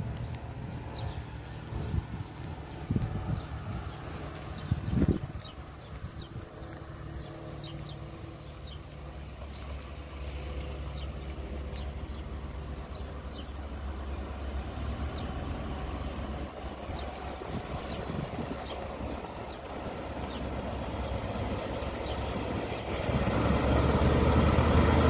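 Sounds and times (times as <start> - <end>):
train diesel engine drone: 0.0 - 25.0.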